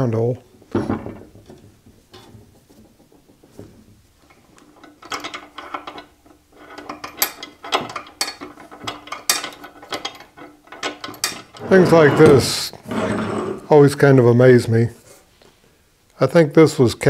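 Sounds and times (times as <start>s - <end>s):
bandsaw wheel clicking and rattling: 4.6s - 11.9s.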